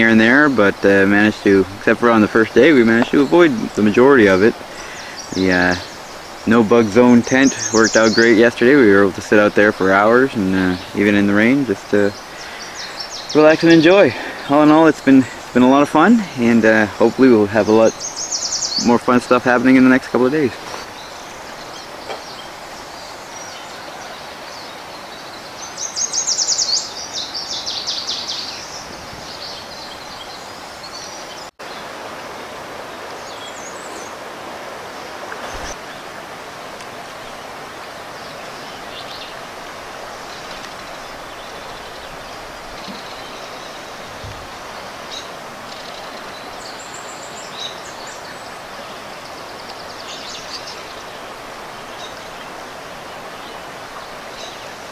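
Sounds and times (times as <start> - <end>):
river flowing over rocks: 0.0 - 27.8, 31.6 - 54.9.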